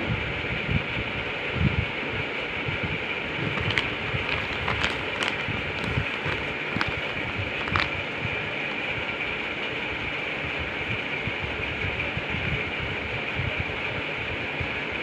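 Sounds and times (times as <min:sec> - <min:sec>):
plastic bag crinkling: 0:03.4 - 0:08.1.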